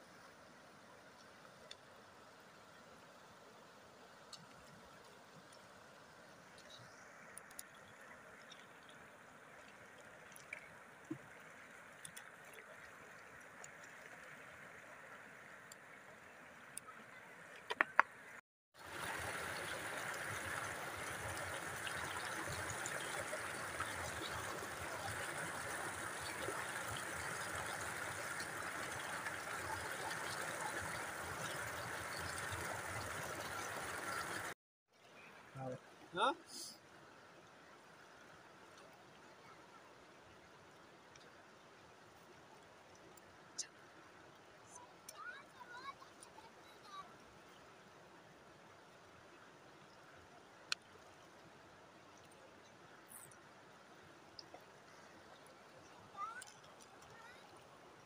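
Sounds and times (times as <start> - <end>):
water rushing over a weir: 3.9 - 34.6
water splashes: 3.9 - 34.6, 40.2 - 58.0.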